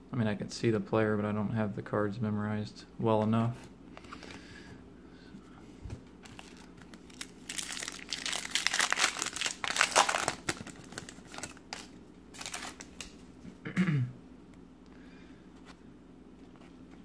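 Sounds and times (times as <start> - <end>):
foil wrapper crinkling and tearing: 6.2 - 13.2.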